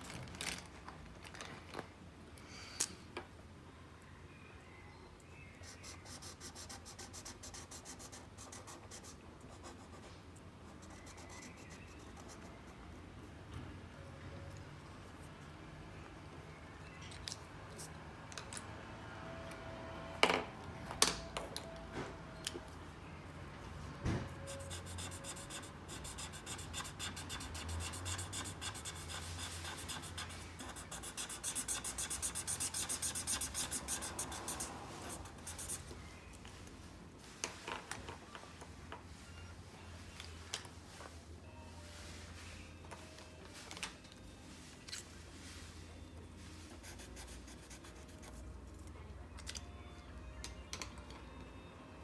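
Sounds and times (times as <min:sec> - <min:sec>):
marker scratching on paper: 0:05.6 - 0:12.8, 0:24.4 - 0:35.9.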